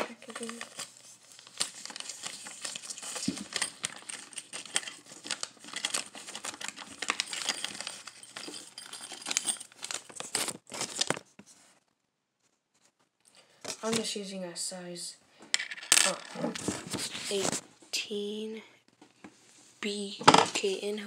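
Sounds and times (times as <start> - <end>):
plastic packet crinkling: 0.1 - 11.3.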